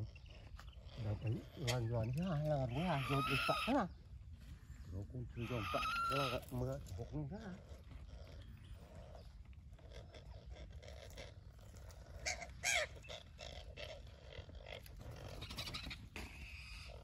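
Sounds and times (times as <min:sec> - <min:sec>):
eagle screeching: 0:02.5 - 0:04.0, 0:05.4 - 0:06.6, 0:12.1 - 0:14.0
hoarse eagle calls: 0:02.7 - 0:04.0, 0:05.4 - 0:06.5, 0:09.0 - 0:17.0.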